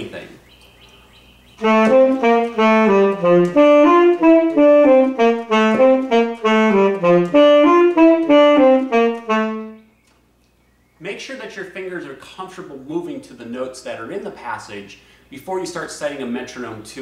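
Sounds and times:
tenor saxophone playing: 0:01.6 - 0:09.9.

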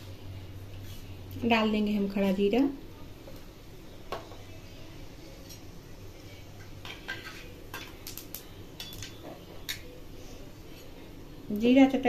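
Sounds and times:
seeds crackling in hot oil: 0:03.3 - 0:12.0.

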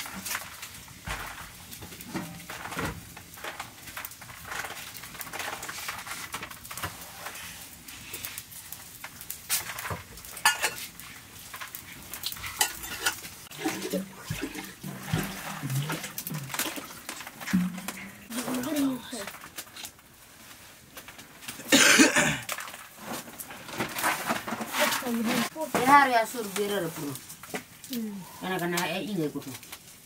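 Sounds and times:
metal pots and utensils clattering: 0:00.0 - 0:06.9, 0:09.5 - 0:19.5, 0:21.4 - 0:27.0.

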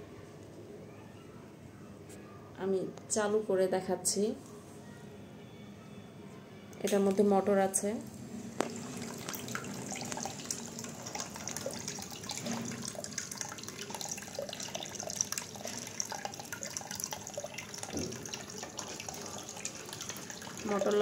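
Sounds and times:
fountain water trickling: 0:08.6 - 0:21.0
water drips into basin: 0:08.6 - 0:21.0.

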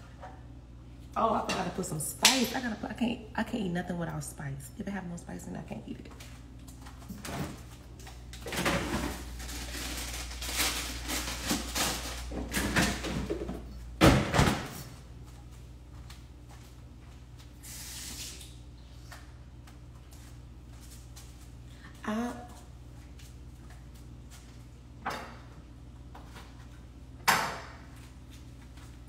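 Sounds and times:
rustling and clattering in cupboards: 0:06.1 - 0:15.0.

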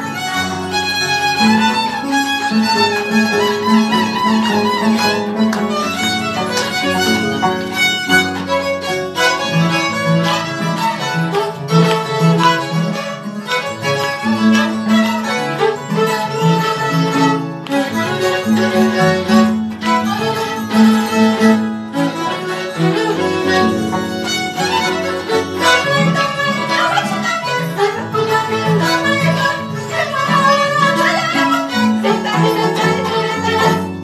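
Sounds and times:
violin melody: 0:00.0 - 0:34.0.

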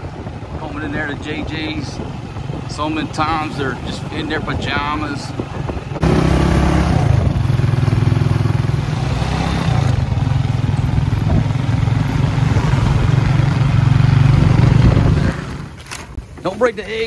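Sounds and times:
motorcycle engine running: 0:05.4 - 0:16.2.

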